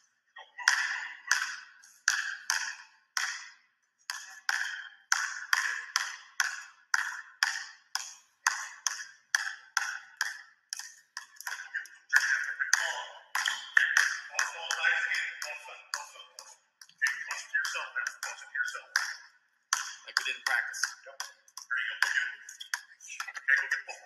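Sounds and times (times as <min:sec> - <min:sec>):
basketball bouncing on hardwood floor: 0:00.7 - 0:15.3.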